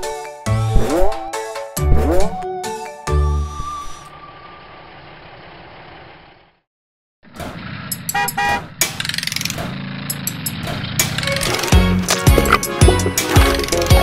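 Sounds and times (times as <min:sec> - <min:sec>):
cartoon truck horn toots: 0:08.1 - 0:08.7.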